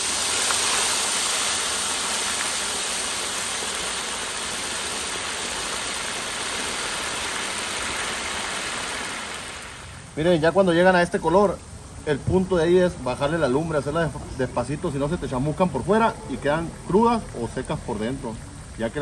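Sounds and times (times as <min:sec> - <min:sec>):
chicken deep-frying in oil: 0:00.0 - 0:11.0.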